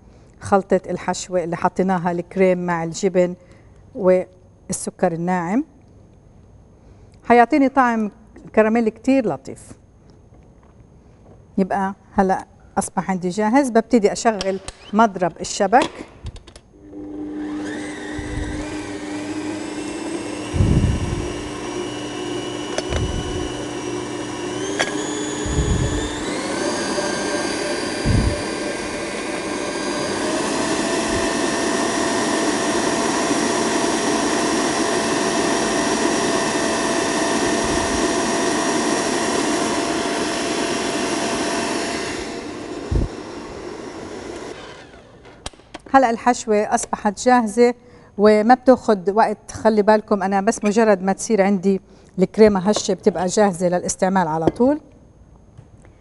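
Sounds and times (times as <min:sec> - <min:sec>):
stand mixer motor whisking: 0:16.8 - 0:45.3.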